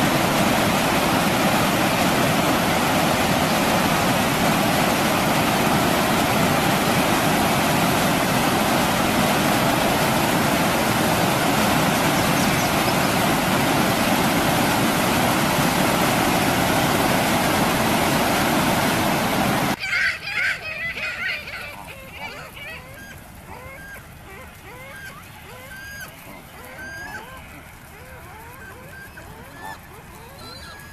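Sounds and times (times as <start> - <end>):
river rapids rushing: 0.0 - 19.8.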